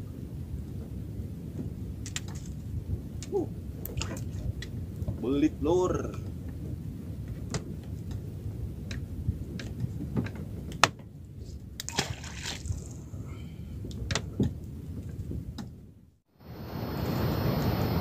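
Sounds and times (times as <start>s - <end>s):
wind on microphone: 0.0s - 18.0s
water lapping against boat hull: 0.2s - 16.1s
light clicks and knocks: 6.2s - 11.1s, 13.8s - 15.8s.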